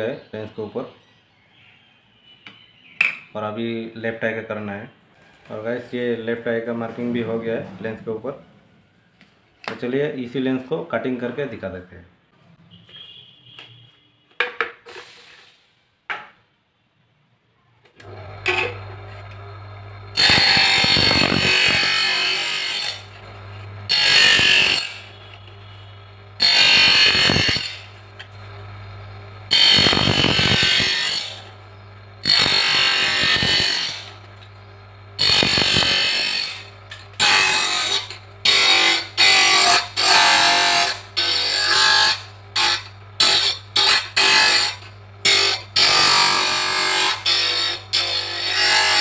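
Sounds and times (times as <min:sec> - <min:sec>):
motor humming: 0:18.0 - 0:49.0.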